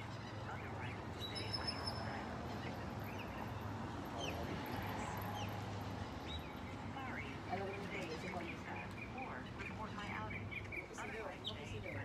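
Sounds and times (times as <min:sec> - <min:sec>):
small birds chirping: 0:06.2 - 0:12.0.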